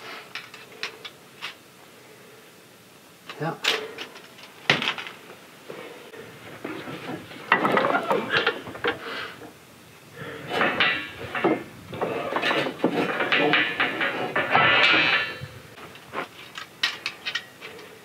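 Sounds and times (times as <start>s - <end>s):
metallic clanking and rattling of tools: 10.3s - 18.0s.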